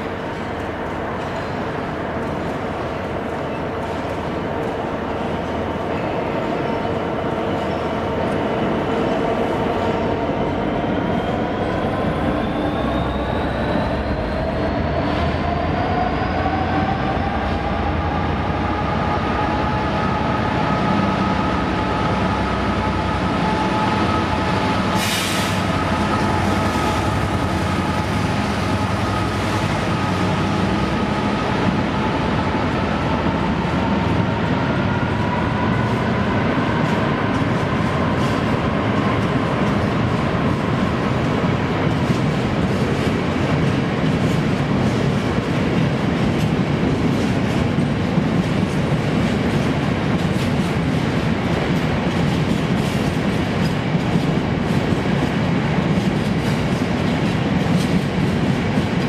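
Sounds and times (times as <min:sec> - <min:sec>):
diesel locomotive engine: 0:00.0 - 0:59.0
freight train rumble: 0:00.0 - 0:59.0
short air hiss: 0:25.0 - 0:25.6.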